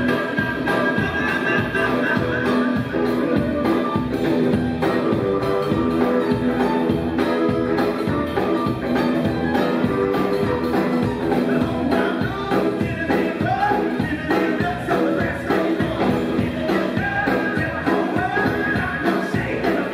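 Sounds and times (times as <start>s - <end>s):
man singing: 0.0s - 3.6s, 9.8s - 19.9s
drum beat: 0.0s - 19.9s
electric guitar: 0.0s - 19.9s.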